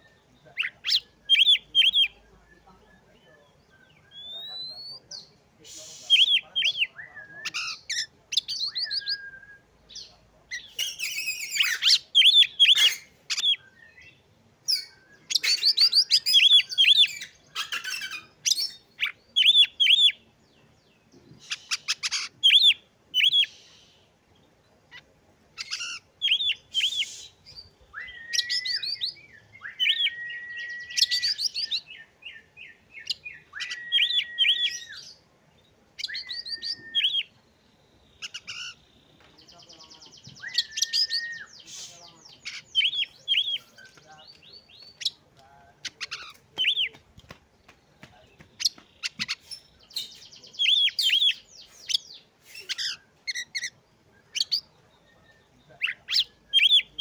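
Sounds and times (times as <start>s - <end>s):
bird singing varied song: 0.0s - 57.0s
long level bird whistles: 8.4s - 9.7s, 26.3s - 32.0s, 33.0s - 35.2s, 36.0s - 37.4s, 40.4s - 42.0s.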